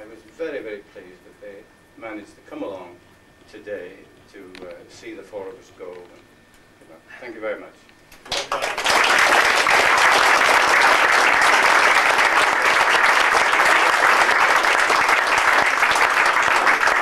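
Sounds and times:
crowd applauding: 8.3 - 17.0.

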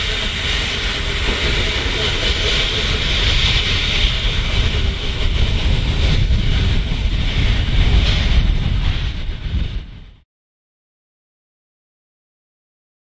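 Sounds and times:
diesel locomotive rumble: 0.0 - 10.2
train running noise: 0.0 - 10.2.

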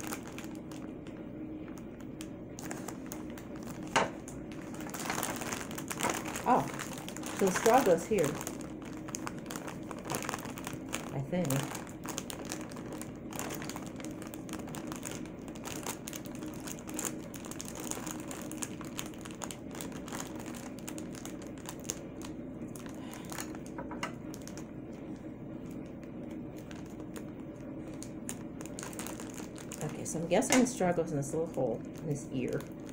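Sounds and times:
foil balloon crinkling: 0.0 - 32.9.

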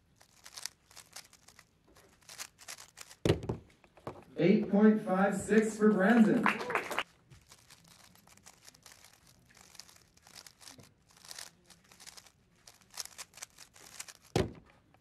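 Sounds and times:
puzzle cube clicking while turned: 0.0 - 3.3, 7.4 - 15.0
cube thump on a mat: 3.2 - 4.2, 14.2 - 14.7.

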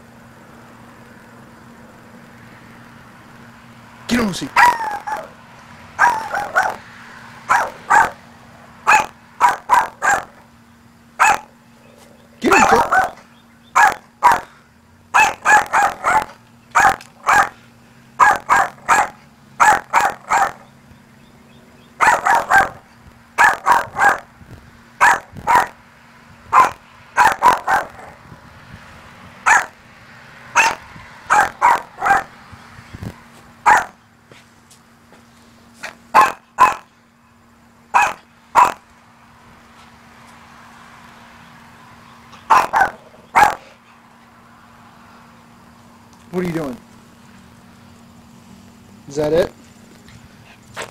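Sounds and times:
small dog barking: 4.5 - 5.4, 6.0 - 6.8, 7.5 - 8.2, 8.8 - 10.4, 11.2 - 11.6, 12.4 - 13.2, 13.8 - 14.5, 15.1 - 17.6, 18.2 - 20.7, 22.0 - 22.8, 23.4 - 24.3, 25.0 - 25.8, 26.5 - 28.2, 29.4 - 29.8, 30.6 - 32.3, 33.6 - 34.0, 36.1 - 36.9, 37.9 - 38.8, 42.5 - 43.7.

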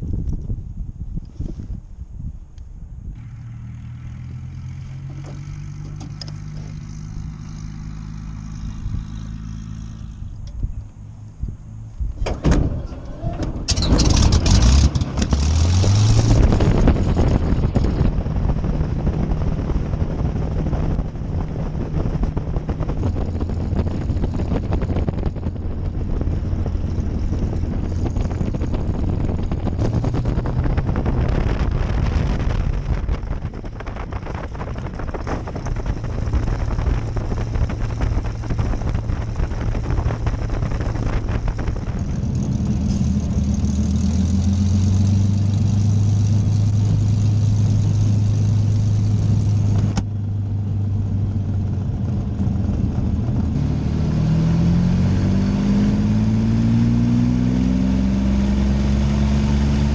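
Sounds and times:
aircraft engine running: 2.5 - 59.9
propeller wash noise: 12.8 - 50.0.

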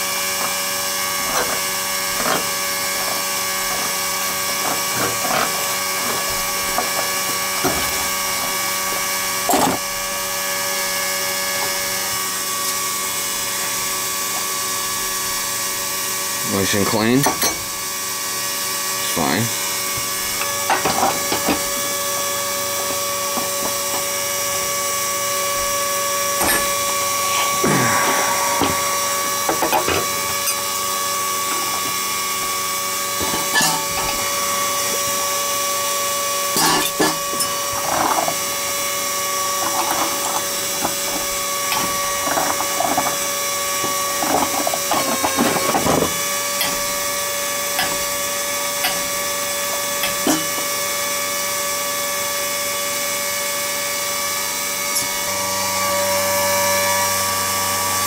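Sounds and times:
steady mechanical hum: 0.0 - 58.0
metal clinks and scrapes: 1.2 - 8.6, 26.3 - 30.8.

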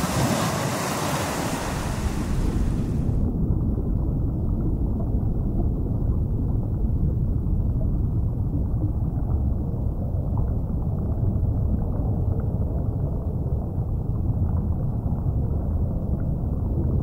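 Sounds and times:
wind: 0.0 - 7.5
water rumbling: 0.0 - 17.0.

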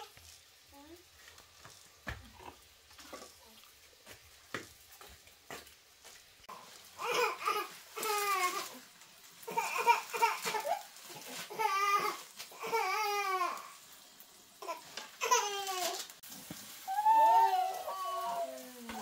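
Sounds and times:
young child babbling and whining: 16.9 - 19.0.

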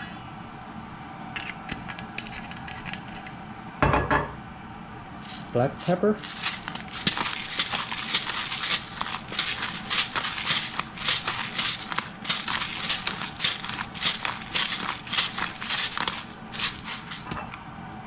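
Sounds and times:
pepper mill grinding: 1.4 - 3.4, 5.2 - 17.4.

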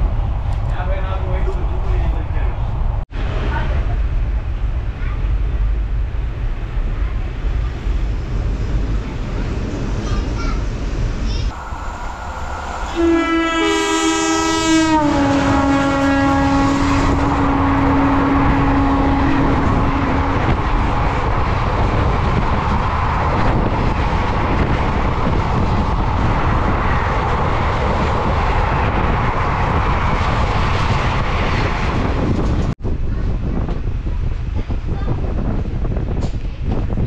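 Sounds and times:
moving train noise: 0.0 - 37.0
train horn: 12.8 - 20.9.

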